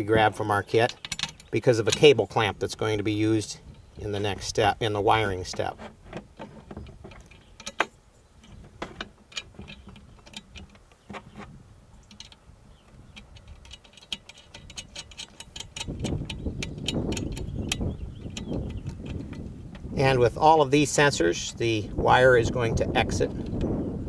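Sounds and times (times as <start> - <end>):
bolts knocking on metal: 0.7 - 2.5, 5.2 - 19.9
light metal clicks and taps: 12.0 - 19.9.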